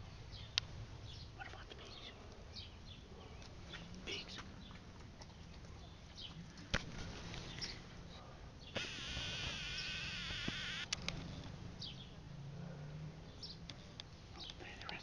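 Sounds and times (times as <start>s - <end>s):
faint bird chirps: 8.7s - 10.8s
camcorder zoom motor whirring: 8.8s - 11.0s.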